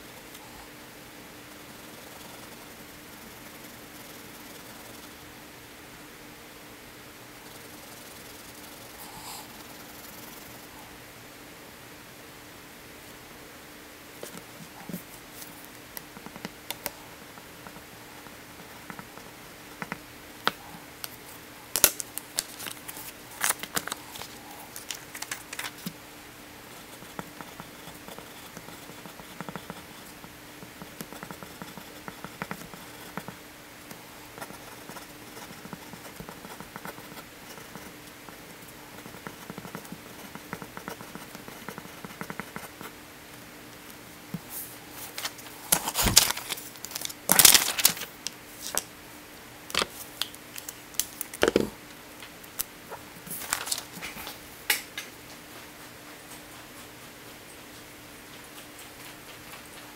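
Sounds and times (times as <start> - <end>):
faint steady hum: 0.0 - 59.9
paper sheets rustling: 21.8 - 25.9, 44.5 - 48.9, 53.3 - 54.4
pencil scratching on paper: 26.7 - 30.2, 30.8 - 33.4, 34.4 - 42.9.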